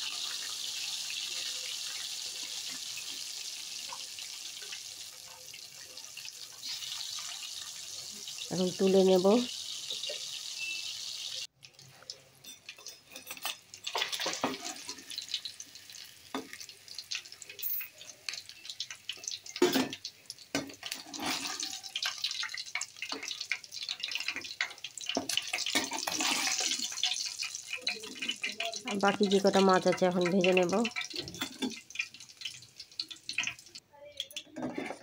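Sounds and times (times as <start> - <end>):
fish frying in sizzling oil: 0.0 - 34.5
metal spatula scraping pan: 12.5 - 15.2, 20.6 - 22.3, 24.0 - 29.2, 34.6 - 35.0.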